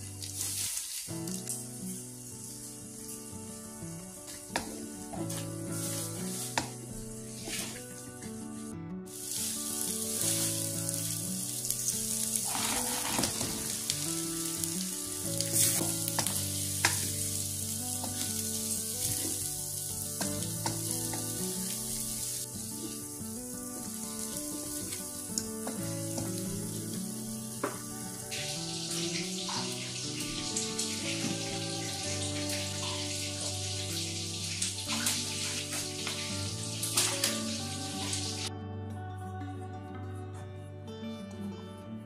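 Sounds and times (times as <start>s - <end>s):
sauce sizzling in oil: 0.0s - 38.5s
soft background music: 0.0s - 42.0s
wooden spatula scraping wok: 5.2s - 8.0s, 12.3s - 13.9s.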